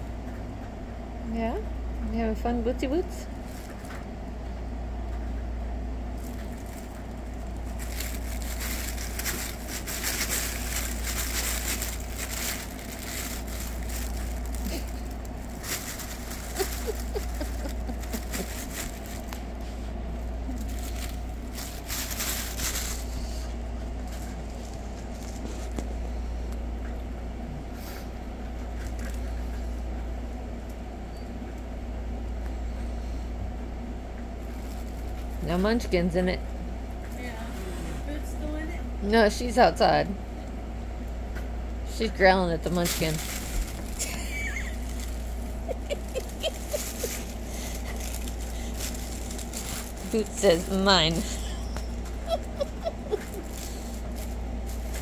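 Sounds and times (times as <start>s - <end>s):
steady low hum: 0.0s - 55.0s
fabric tunnel rustling and crinkling: 6.1s - 26.0s, 42.6s - 55.0s.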